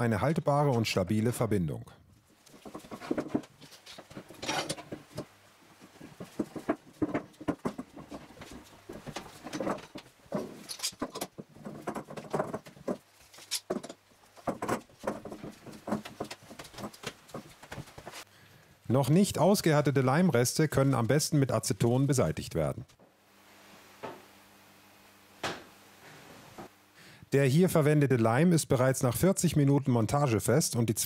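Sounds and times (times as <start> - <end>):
metal clamps rattling and clicking: 2.5 - 5.3, 6.1 - 17.4.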